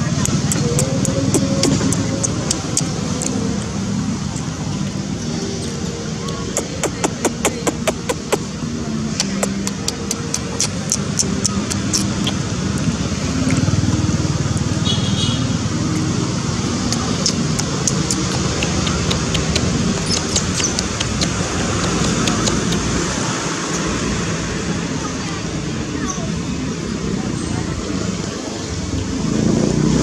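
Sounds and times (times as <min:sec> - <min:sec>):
faint voices: 0:00.0 - 0:30.0
road traffic hum: 0:00.0 - 0:30.0
sharp clicks: 0:00.2 - 0:03.4, 0:09.1 - 0:12.4, 0:16.9 - 0:23.0.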